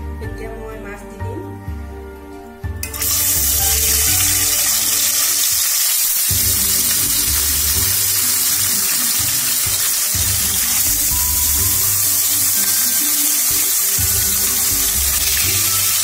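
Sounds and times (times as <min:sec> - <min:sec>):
soft background music: 0:00.0 - 0:16.0
fish sizzling in hot oil: 0:02.8 - 0:16.0.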